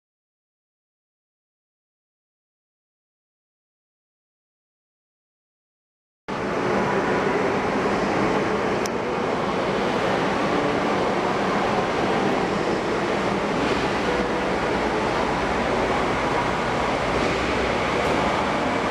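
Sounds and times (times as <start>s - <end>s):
diesel engine drone: 6.3s - 18.9s
wagons rumbling on rails: 6.4s - 18.9s.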